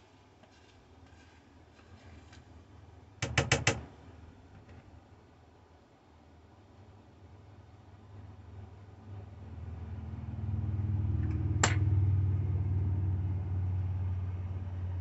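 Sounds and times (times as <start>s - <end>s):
low motor rumble: 8.2s - 15.0s.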